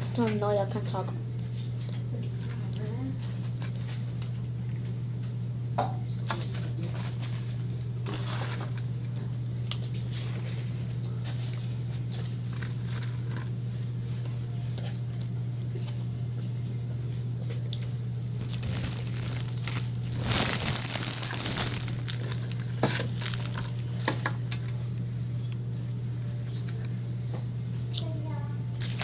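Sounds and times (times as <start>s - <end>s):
steady low hum: 7.3s - 29.0s
foam box crinkling and scraping: 8.1s - 8.7s, 18.4s - 24.1s
chewing: 17.7s - 23.9s.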